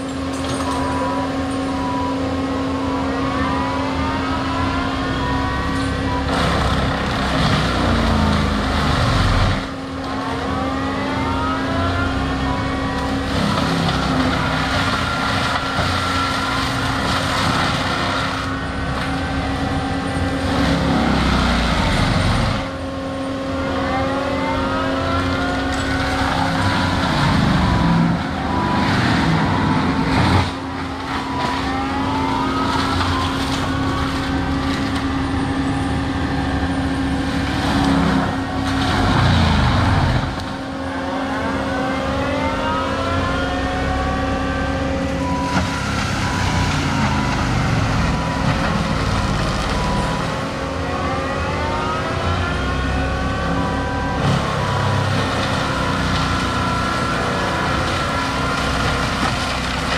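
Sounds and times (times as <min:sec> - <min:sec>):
diesel engine under load: 0:00.0 - 0:59.9
rising engine whine: 0:00.0 - 0:59.9.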